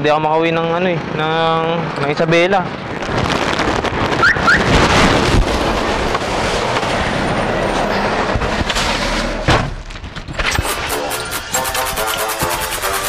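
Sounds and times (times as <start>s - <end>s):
large truck passing: 4.5s - 9.5s.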